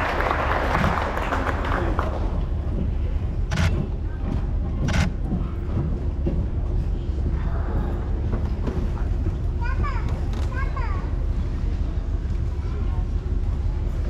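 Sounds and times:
audience applause: 0.0s - 3.7s
low steady hum: 0.0s - 14.0s
murmur of voices: 0.0s - 14.0s.

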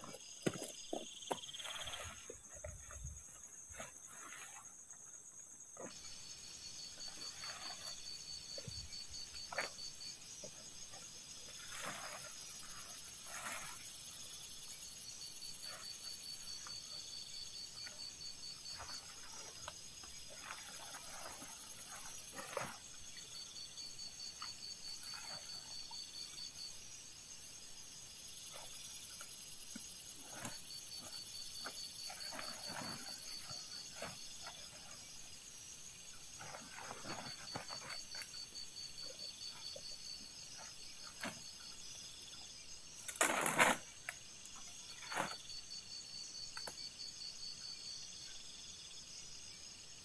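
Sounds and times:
insects and frogs calling: 0.0s - 50.0s
tent rustling and clicking: 28.5s - 35.0s, 36.3s - 38.4s, 43.0s - 44.2s.

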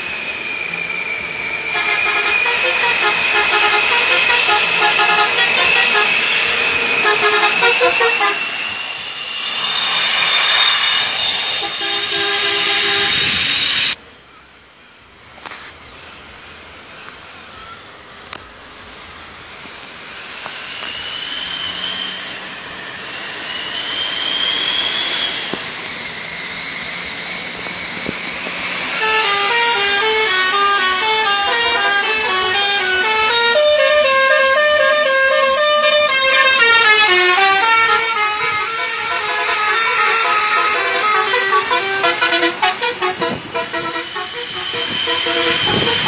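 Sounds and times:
short rising whistling tones: 0.0s - 14.0s, 20.0s - 34.0s, 43.8s - 46.0s
road and engine noise: 0.0s - 46.0s
musical bus horn tune: 1.7s - 8.6s, 11.6s - 13.6s, 29.0s - 46.0s.

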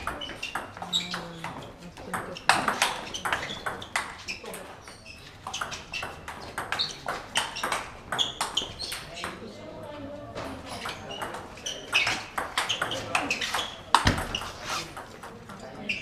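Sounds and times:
table tennis ball clicking: 0.0s - 4.6s, 5.4s - 9.4s, 10.8s - 14.4s.

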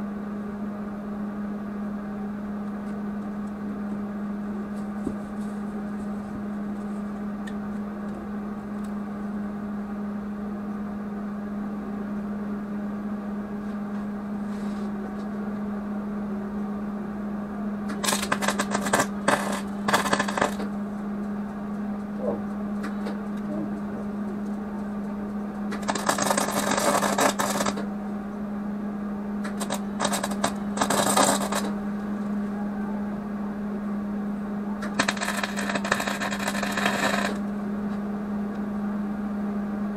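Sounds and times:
steady hum: 0.0s - 39.9s
welding arc crackling: 17.9s - 20.7s, 25.7s - 27.8s, 29.4s - 31.7s, 34.8s - 37.5s.

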